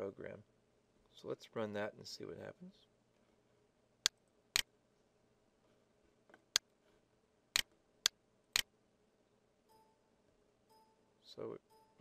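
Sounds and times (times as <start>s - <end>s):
short electronic beep: 9.7s - 10.1s, 10.7s - 12.0s.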